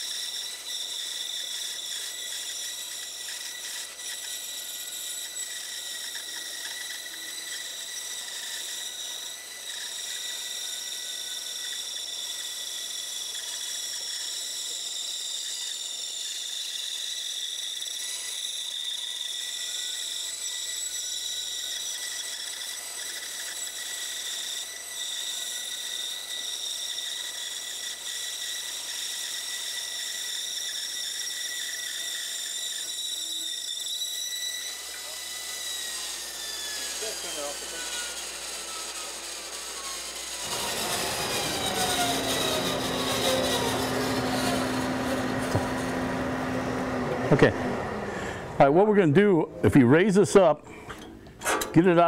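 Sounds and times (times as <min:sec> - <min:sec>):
bandsaw whining: 0:00.0 - 0:52.0.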